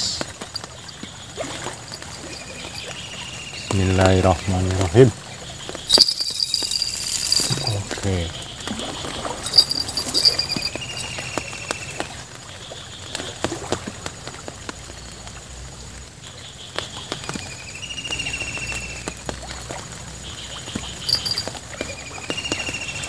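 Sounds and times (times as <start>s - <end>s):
bird trill: 5.6s - 12.0s, 20.3s - 21.5s.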